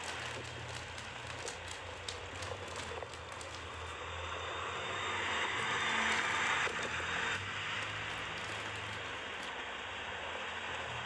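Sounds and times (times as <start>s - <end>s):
tyres on gravel: 0.0s - 4.0s, 5.6s - 9.8s
truck engine hum: 0.0s - 11.0s.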